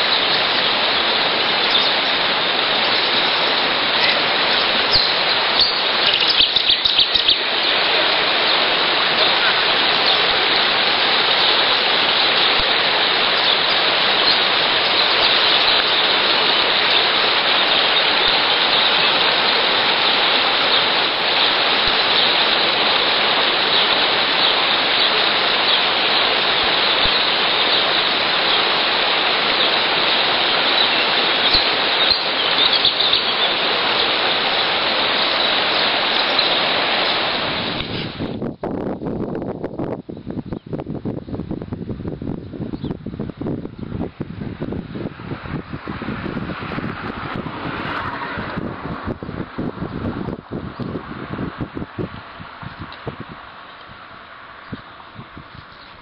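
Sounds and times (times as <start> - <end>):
river water rushing over rocks: 0.0 - 38.3.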